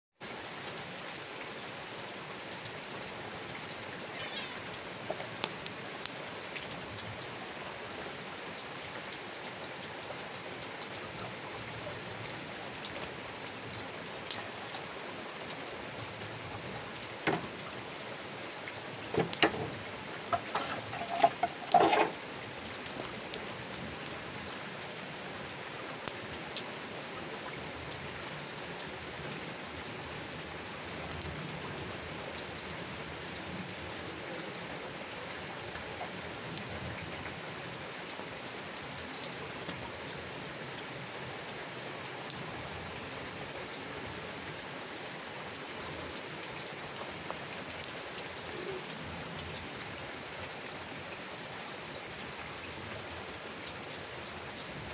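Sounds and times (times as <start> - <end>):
rain hissing: 1.7 - 35.2
fire crackling and popping: 18.8 - 22.2.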